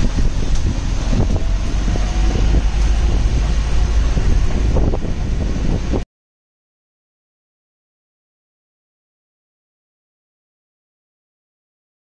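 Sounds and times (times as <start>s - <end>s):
wind buffeting microphone: 0.0s - 6.0s
bus engine and road noise: 0.0s - 6.1s.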